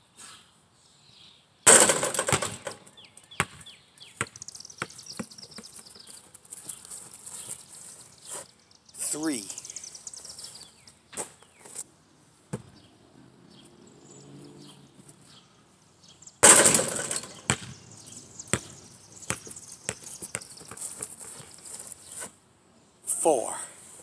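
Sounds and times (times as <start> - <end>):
basketball clanging on hoop: 1.7 - 2.9, 16.4 - 17.7
basketball bouncing on ground: 1.7 - 6.2, 12.5 - 12.8, 16.4 - 21.6.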